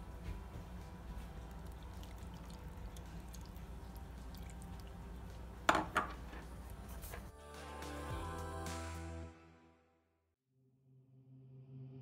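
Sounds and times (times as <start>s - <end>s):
milk poured into mashed potatoes: 1.2s - 5.4s
spoon knocking against pot: 5.7s - 6.2s.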